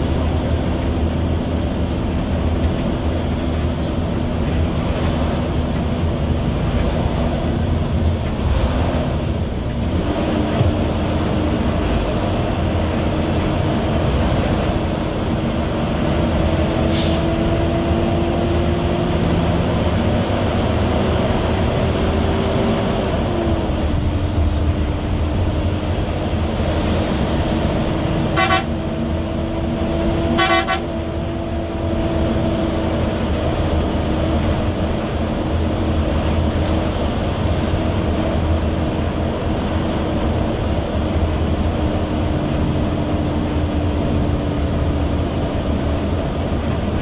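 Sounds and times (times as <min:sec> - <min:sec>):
vehicle engine and road drone: 0:00.0 - 0:47.0
horn toots: 0:28.2 - 0:28.9, 0:30.3 - 0:31.0.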